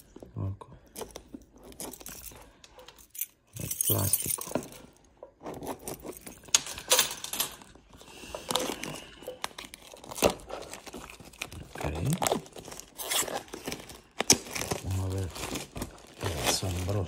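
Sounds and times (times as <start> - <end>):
plastic film tearing and crinkling: 8.5 - 17.0.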